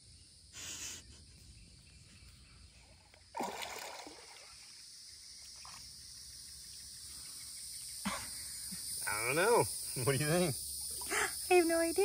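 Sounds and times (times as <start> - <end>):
insects droning: 0.0 - 12.0
shallow water splash: 3.3 - 4.8.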